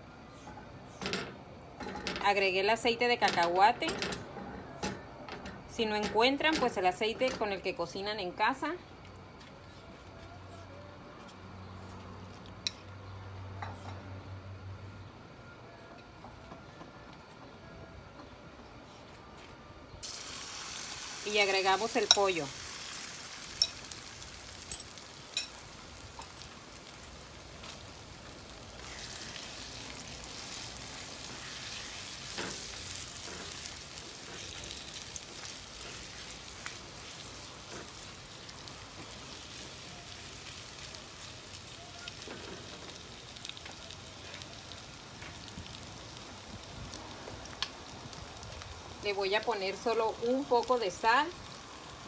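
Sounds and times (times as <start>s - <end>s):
chicken sizzling in oil: 20.0s - 52.0s.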